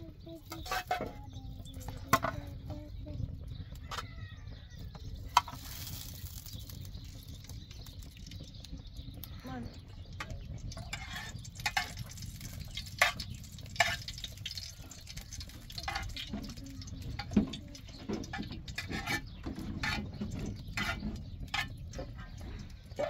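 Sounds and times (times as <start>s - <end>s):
metal spoon scraping a frying pan: 0.4s - 2.6s, 10.2s - 23.0s
steady low rumble: 1.4s - 5.4s.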